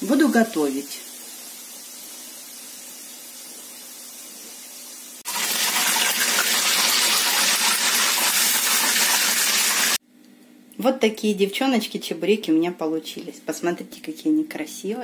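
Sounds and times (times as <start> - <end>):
pastries sizzling in hot oil: 0.0 - 10.0.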